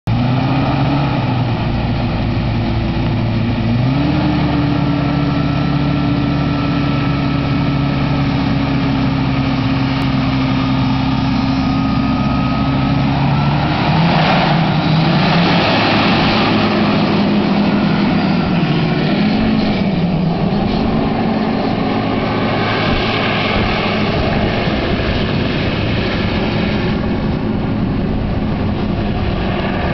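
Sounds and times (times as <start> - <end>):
hovercraft engine and fan running: 0.1 - 29.9.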